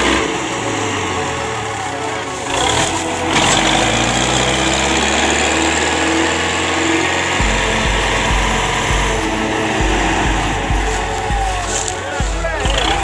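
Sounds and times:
tractor diesel engine running: 0.0s - 13.0s
music with thumping beat: 7.4s - 13.0s.

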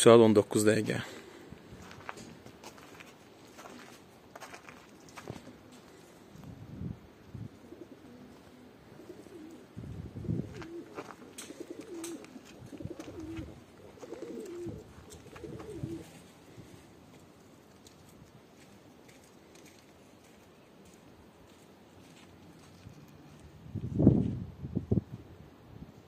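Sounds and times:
pigeons cooing: 7.4s - 16.8s.

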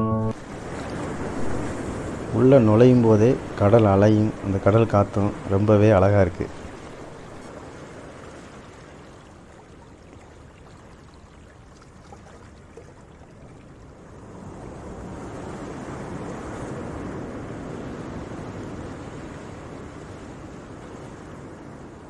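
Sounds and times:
sea waves washing in: 0.0s - 22.0s
wind: 0.0s - 22.0s.

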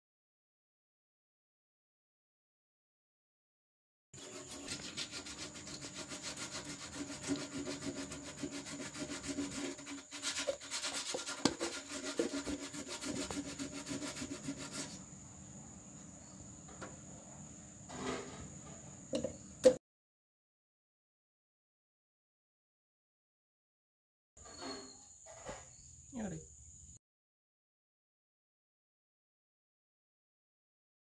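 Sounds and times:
abrasive scrubbing strokes: 4.2s - 15.0s.

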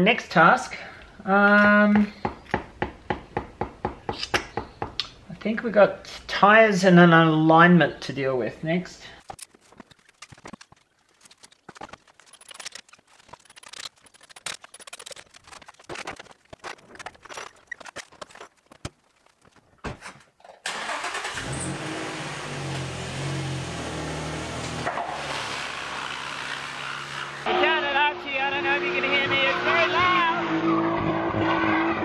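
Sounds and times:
car engine starting and idling: 20.6s - 25.0s.

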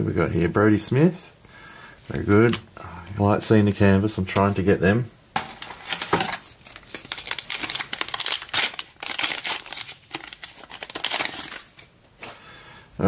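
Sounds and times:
plastic wrapper crinkling: 5.4s - 11.9s
wrapper being torn open: 5.6s - 11.9s.

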